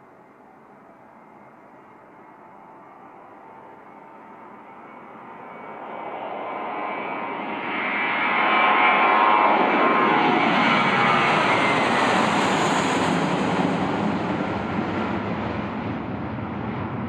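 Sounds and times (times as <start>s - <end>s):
jet engine roar: 0.1s - 17.0s.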